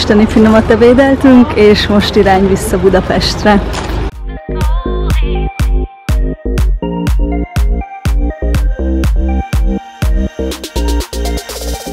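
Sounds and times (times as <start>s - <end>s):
background music with steady beat: 4.1s - 11.9s
repeating bass line: 4.1s - 11.9s.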